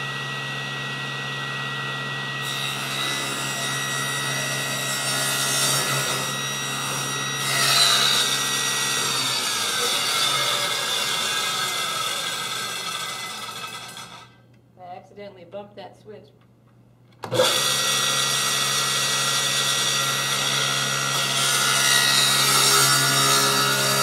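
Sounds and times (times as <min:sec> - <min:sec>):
table saw whining: 0:00.0 - 0:14.4, 0:17.2 - 0:24.0
saw ripping through wood: 0:02.4 - 0:14.4, 0:17.3 - 0:24.0.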